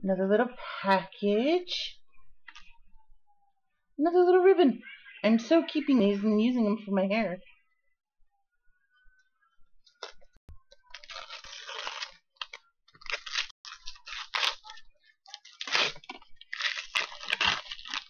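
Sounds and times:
packaging tearing and crinkling: 10.9s - 18.0s.

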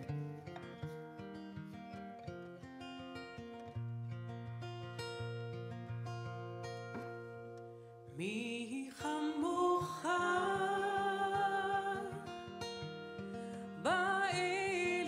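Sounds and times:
acoustic guitar strummed and picked: 0.0s - 15.0s
woman singing long notes: 8.2s - 15.0s.

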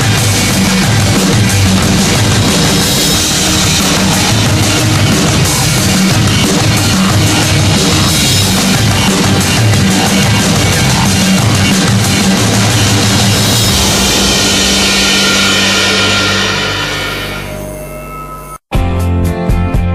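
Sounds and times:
rock music with drums and guitars: 0.0s - 19.9s.

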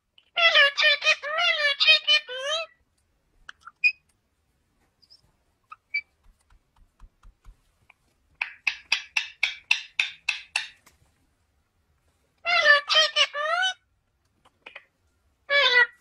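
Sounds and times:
parakeet soft chirps and clicks: 5.0s - 10.8s.

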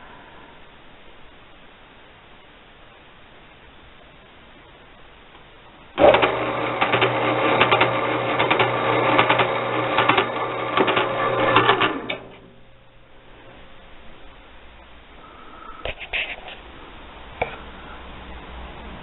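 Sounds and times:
motor humming: 6.0s - 12.9s.

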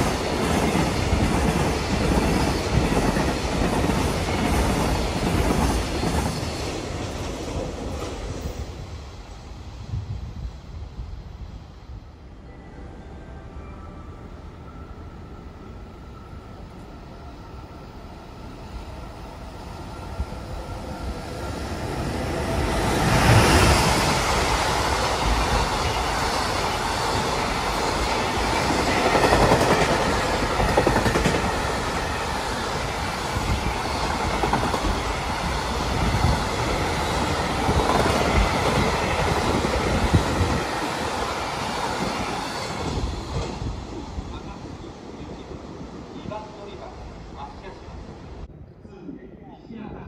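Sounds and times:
freight train passing: 0.0s - 50.0s.

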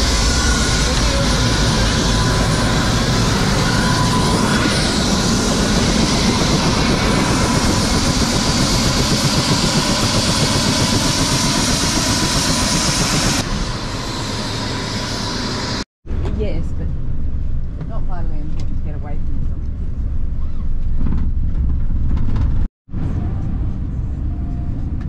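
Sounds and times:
helicopter rotor chop: 0.0s - 15.8s
helicopter turbine whine: 0.0s - 15.8s.

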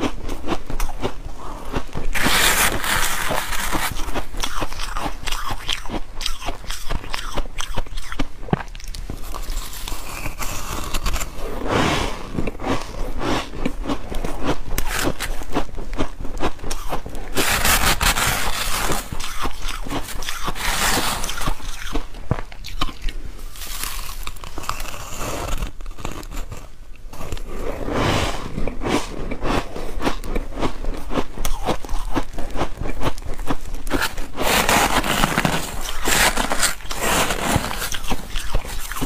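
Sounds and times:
ice being chewed: 0.0s - 11.6s, 12.2s - 27.6s, 28.5s - 39.0s
metal scoop scraping ice: 2.1s - 5.4s, 14.8s - 15.4s, 16.7s - 21.9s, 33.9s - 39.0s.

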